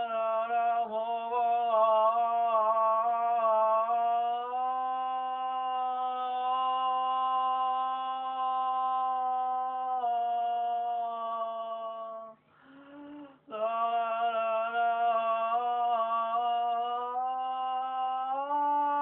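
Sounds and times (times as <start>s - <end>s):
woman singing long notes: 5.0s - 19.0s.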